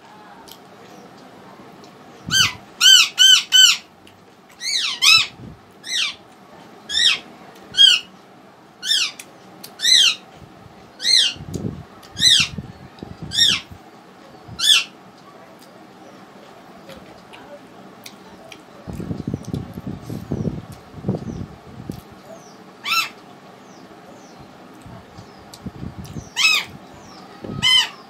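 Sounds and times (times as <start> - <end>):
bird calling: 2.2 - 3.9, 12.2 - 12.6, 13.3 - 13.8, 22.3 - 24.4, 26.1 - 28.0.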